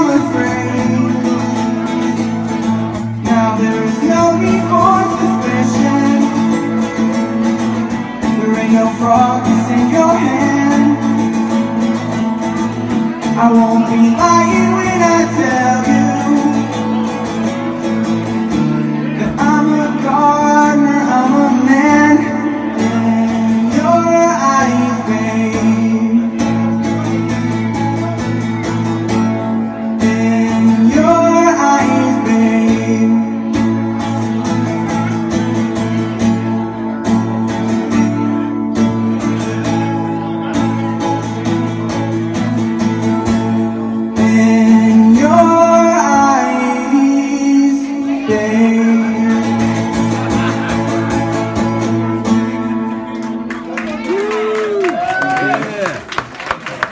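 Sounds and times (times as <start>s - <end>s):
person singing wordlessly: 0.0s - 1.8s, 3.2s - 6.8s, 8.2s - 11.3s, 13.3s - 17.0s, 19.2s - 26.6s, 30.0s - 33.5s, 44.2s - 49.9s
acoustic guitar picking: 0.0s - 54.0s.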